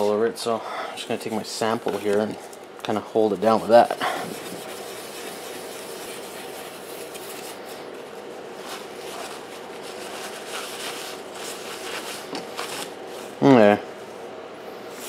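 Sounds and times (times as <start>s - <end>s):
paper towel wiping board: 3.2s - 13.4s
steel wool scrubbing copper: 3.4s - 7.6s.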